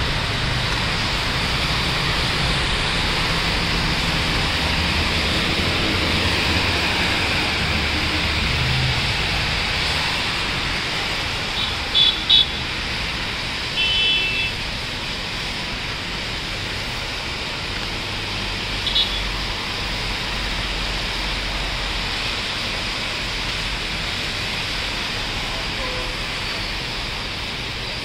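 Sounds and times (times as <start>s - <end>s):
steady rain falling: 0.0s - 28.0s
car horn toots: 13.8s - 14.5s.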